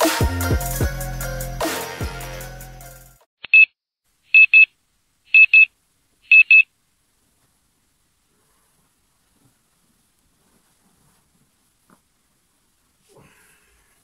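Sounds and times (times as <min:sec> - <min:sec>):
music: 0:00.0 - 0:03.3
electronic alarm beeping: 0:06.3 - 0:06.6.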